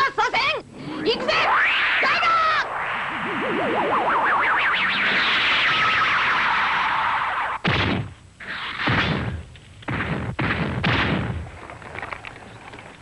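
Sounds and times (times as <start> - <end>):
cartoon impact sound effects: 1.2 - 11.4.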